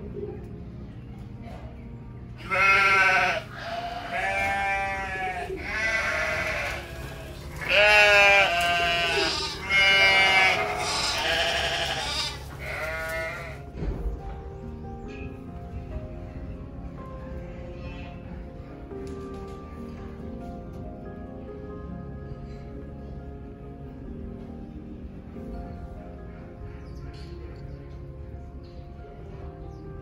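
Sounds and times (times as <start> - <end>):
sheep bleating: 2.4 - 13.6.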